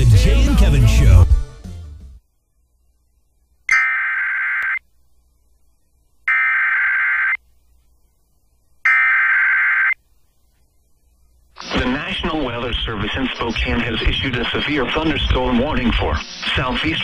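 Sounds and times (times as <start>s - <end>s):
digital data tone bursts: 3.7s - 4.8s.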